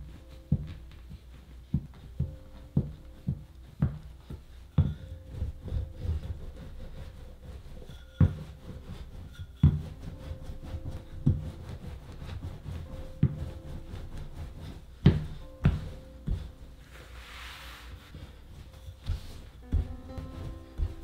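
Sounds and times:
rolling pin rumbling over dough: 0:00.0 - 0:21.0.

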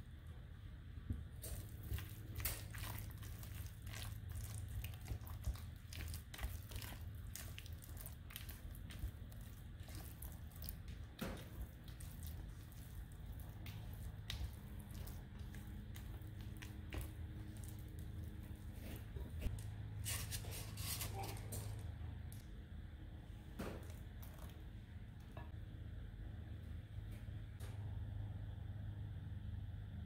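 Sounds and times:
spatula squelching in batter: 0:01.5 - 0:21.3.

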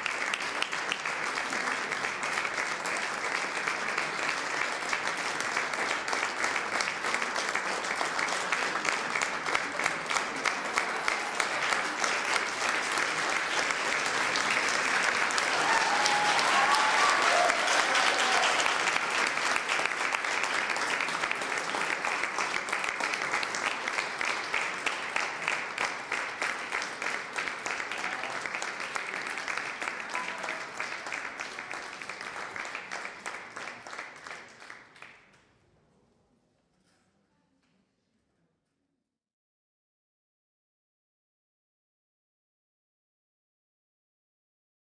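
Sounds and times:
audience applauding: 0:00.0 - 0:35.3.

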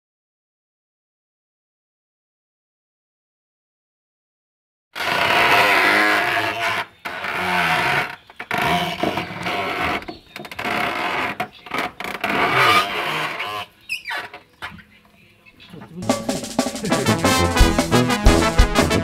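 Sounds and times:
wooden press creaking and squeaking: 0:05.0 - 0:14.9.

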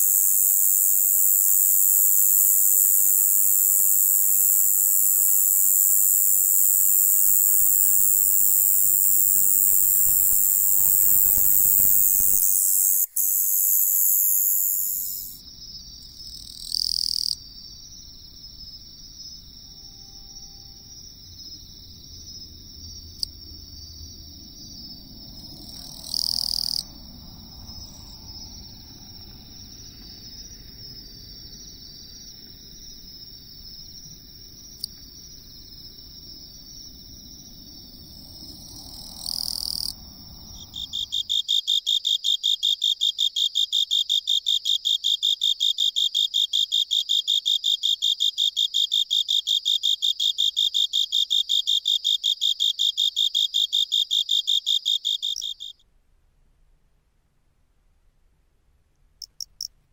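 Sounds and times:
katydid buzzes: 0:00.0 - 0:15.4
cricket trilling: 0:00.0 - 0:55.8, 0:59.2 - 0:59.7
high insect drone: 0:00.0 - 0:55.8.

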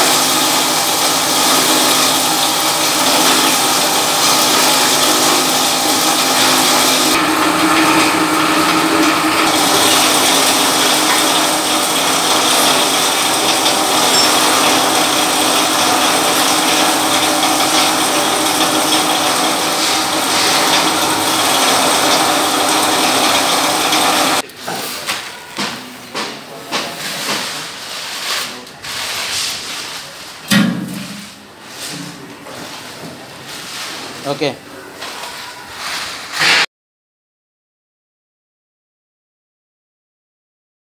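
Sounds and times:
electric grinder running: 0:00.0 - 0:24.4
granules scraping and pouring: 0:27.0 - 0:30.4.

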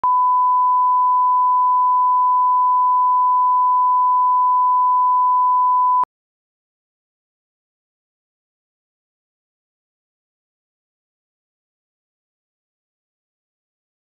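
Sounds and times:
pure reference tone beep: 0:00.0 - 0:06.1.

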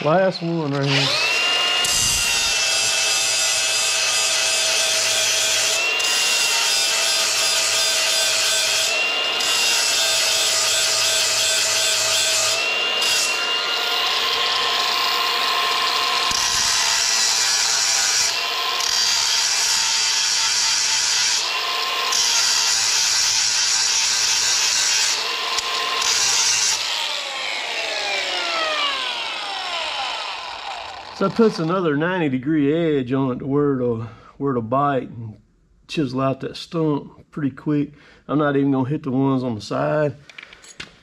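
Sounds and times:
angle grinder whine: 0:00.0 - 0:32.0
grinding wheel rasping on metal: 0:00.8 - 0:31.8.

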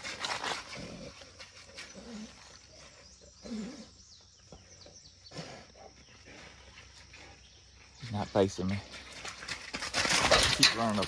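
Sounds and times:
wild boar grunting: 0:00.0 - 0:04.3, 0:04.9 - 0:06.8
small birds chirping: 0:00.7 - 0:09.6.

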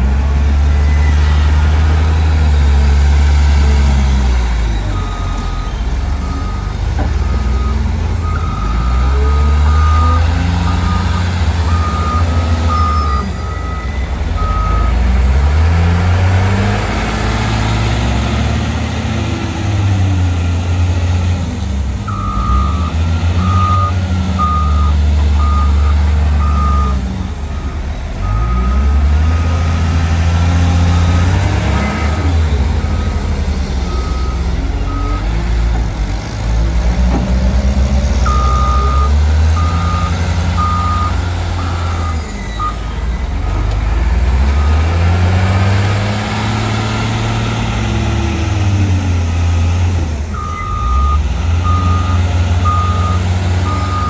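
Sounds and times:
diesel engine revving: 0:00.0 - 0:54.0
reversing alarm beeping: 0:04.8 - 0:15.0, 0:22.1 - 0:27.0, 0:38.3 - 0:42.8, 0:50.4 - 0:54.0.

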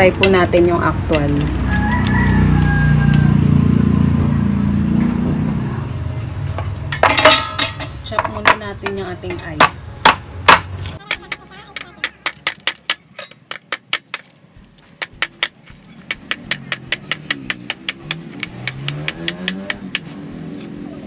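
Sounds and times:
knife chopping ice on board: 0:15.0 - 0:20.1.

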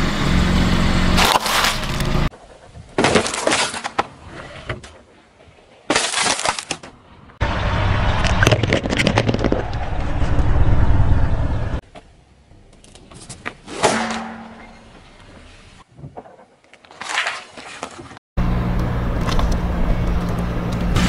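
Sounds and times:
low car rumble: 0:07.4 - 0:11.8, 0:18.4 - 0:21.0.

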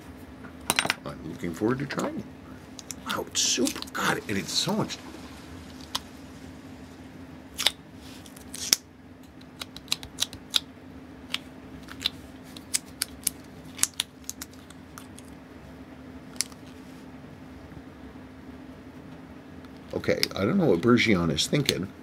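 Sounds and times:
low hum: 0:00.0 - 0:09.9
putty ticking and snapping: 0:08.6 - 0:10.7.

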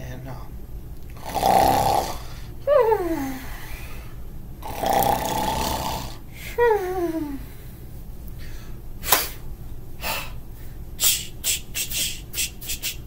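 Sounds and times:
man imitating snoring: 0:01.2 - 0:02.4, 0:04.6 - 0:06.2.

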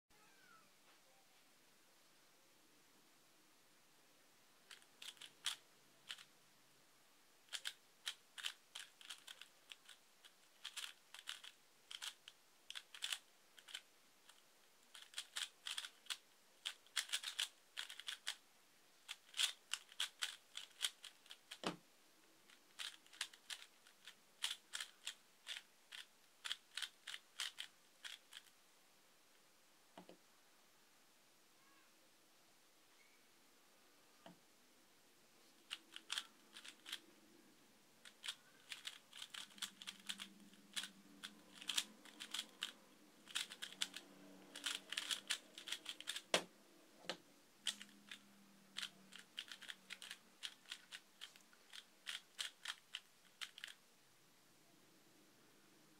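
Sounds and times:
puzzle cube clicking: 0:04.6 - 0:06.3, 0:07.4 - 0:18.4, 0:19.0 - 0:21.8, 0:22.5 - 0:28.5, 0:35.6 - 0:37.1, 0:38.0 - 0:46.5, 0:47.1 - 0:53.8.

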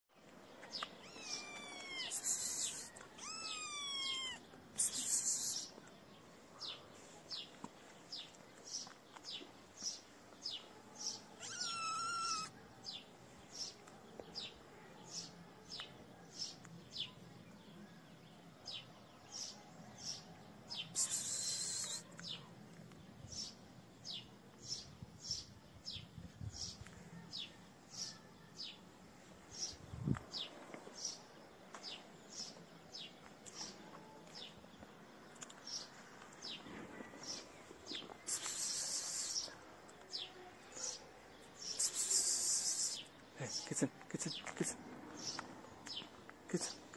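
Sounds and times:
kitten mewing: 0:01.0 - 0:05.7, 0:11.4 - 0:12.5
short high chirps: 0:04.8 - 0:05.7
hissing noise: 0:38.2 - 0:39.5, 0:41.7 - 0:43.0.

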